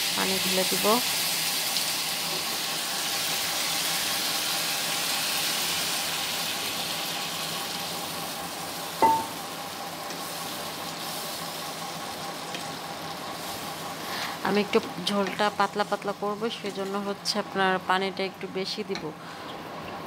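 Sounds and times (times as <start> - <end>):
curry sizzling in hot oil: 0.0 - 17.3
sharp metallic clink: 9.0 - 9.4.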